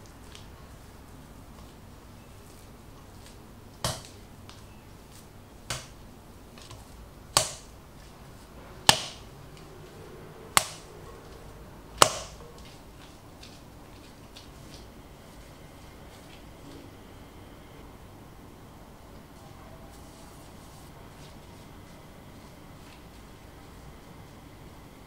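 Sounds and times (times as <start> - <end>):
dough thumping against bowl: 3.8 - 4.2, 8.8 - 9.3, 12.0 - 12.8.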